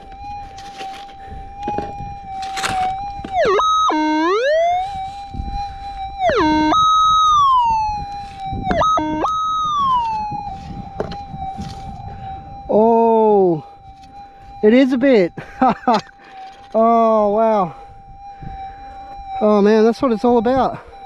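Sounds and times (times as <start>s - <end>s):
dirt scraping: 0.0s - 3.5s, 8.0s - 12.0s
metal detector target signals: 0.0s - 5.6s, 6.2s - 17.6s
metal detector threshold hum: 0.0s - 20.6s.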